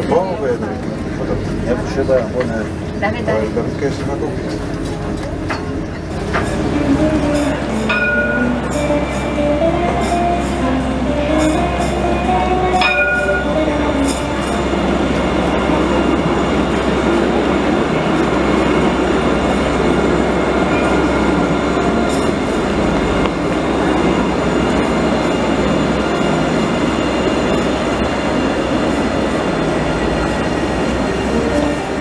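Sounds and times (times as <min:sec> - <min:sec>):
tram passing close by: 0:00.0 - 0:32.0.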